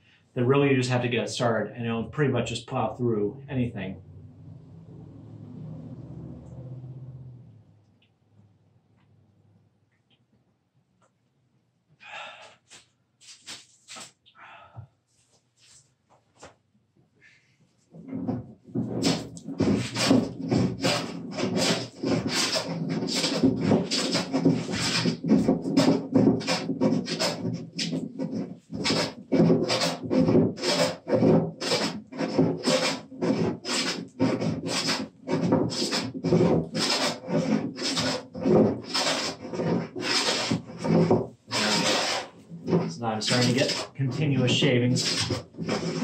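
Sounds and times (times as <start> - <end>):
hand plane scraping wood: 17.9 - 46.0.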